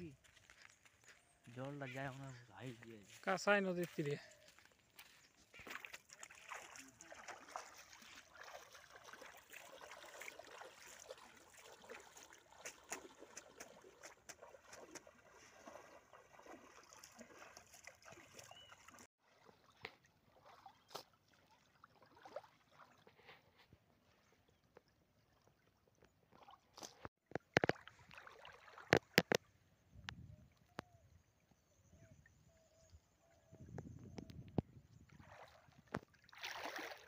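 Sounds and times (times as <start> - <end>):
water splashing from wading: 4.5 - 23.3, 26.3 - 29.5, 35.1 - 37.0.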